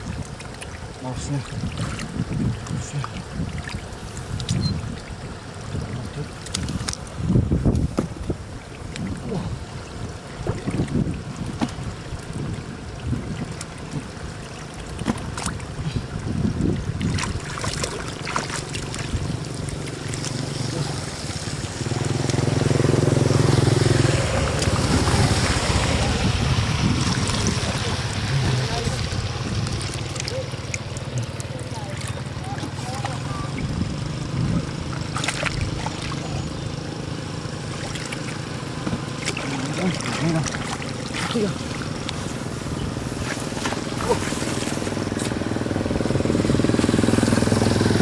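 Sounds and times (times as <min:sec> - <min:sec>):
low steady rumble: 0:00.0 - 0:48.0
hands splashing in muddy water: 0:05.8 - 0:09.6, 0:13.1 - 0:36.6, 0:37.5 - 0:45.4.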